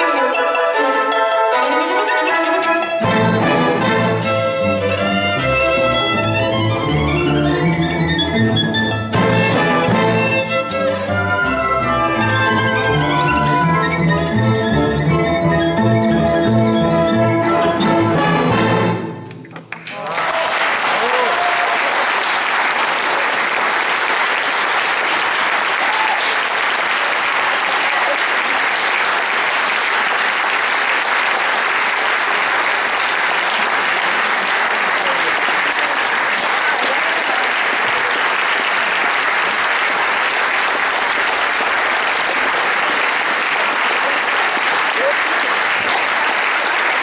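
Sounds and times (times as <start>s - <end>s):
audience applauding: 19.6s - 47.0s.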